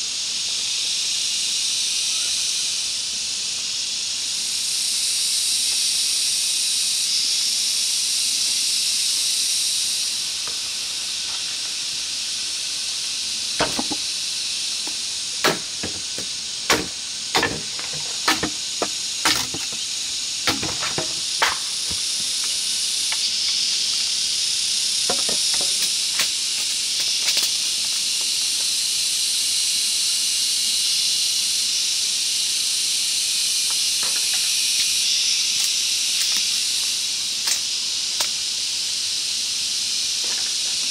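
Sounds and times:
insect chorus: 0.0s - 40.9s
sharp knocks: 13.6s - 14.0s, 15.4s - 19.8s, 20.5s - 22.3s, 25.1s - 25.8s.

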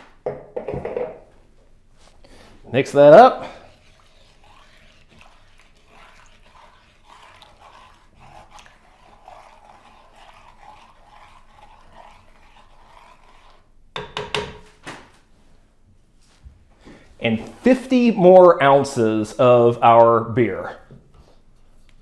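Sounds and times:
spoon stirring liquid in bowl: 2.1s - 14.6s
spoon knocking on bowl: 14.0s - 14.6s.

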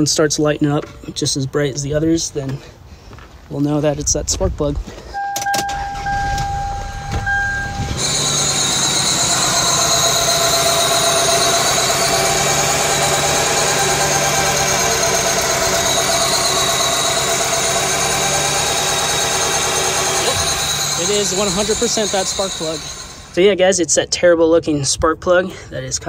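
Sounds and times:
electronic warning chime: 5.2s - 8.5s
misfiring car engine idling: 5.7s - 23.4s.

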